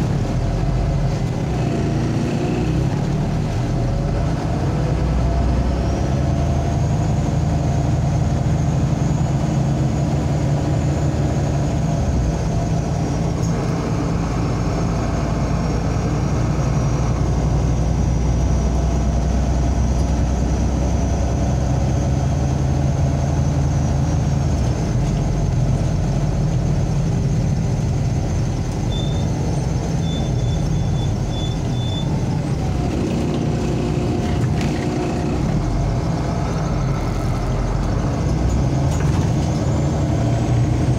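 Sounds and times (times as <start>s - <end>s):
bus engine drone: 0.0s - 40.9s
road noise: 0.0s - 40.9s
short high beeps: 28.9s - 29.3s.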